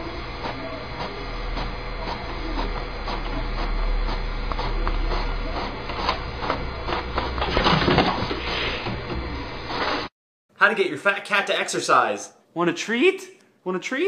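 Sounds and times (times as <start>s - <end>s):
paper feeding out of printer: 0.0s - 10.1s
printer motor hum: 0.0s - 10.1s.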